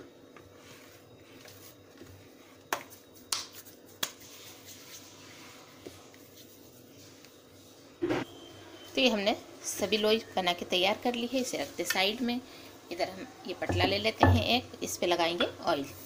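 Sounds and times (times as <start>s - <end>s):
quiet dough handling sounds: 0.0s - 8.0s, 9.9s - 16.0s
dough slapping between palms: 2.7s - 5.0s.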